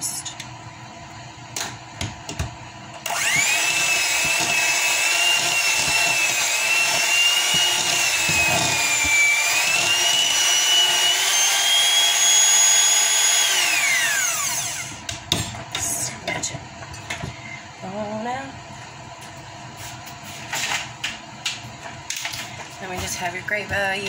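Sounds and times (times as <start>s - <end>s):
electric hand mixer running: 2.4s - 15.2s.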